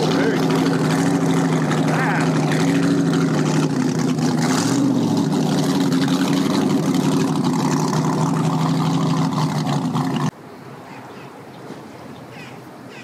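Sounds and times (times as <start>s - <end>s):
boat engine running at low speed: 0.0s - 10.4s.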